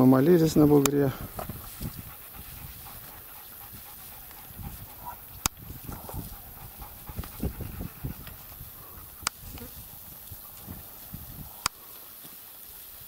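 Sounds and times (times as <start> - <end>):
dogs panting hard: 0.6 - 9.4.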